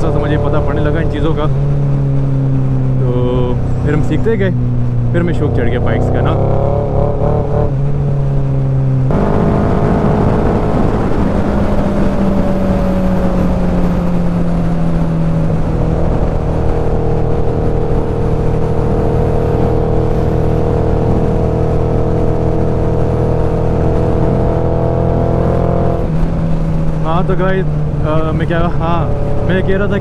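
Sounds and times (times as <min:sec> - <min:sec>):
motorcycle engine at speed: 0:00.0 - 0:30.0
wind rush on microphone: 0:00.0 - 0:30.0.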